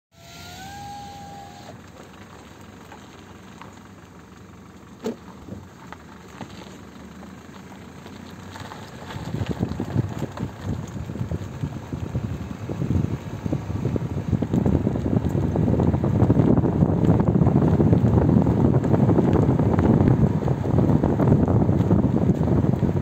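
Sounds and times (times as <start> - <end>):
short rising whine: 0.1 - 1.8
car engine rumbling: 0.1 - 23.0
wind buffeting microphone: 9.1 - 23.0.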